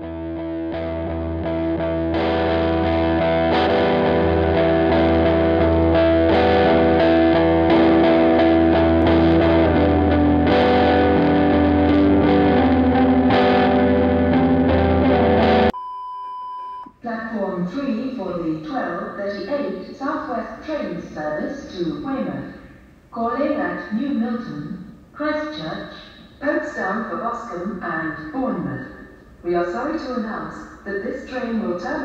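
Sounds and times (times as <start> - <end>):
low bass: 0.0 - 15.7
distorted guitar chords: 0.0 - 15.8.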